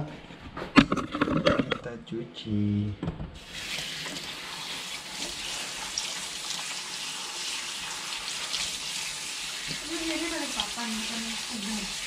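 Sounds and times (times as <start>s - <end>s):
tap water running into metal bowl: 3.4s - 12.0s.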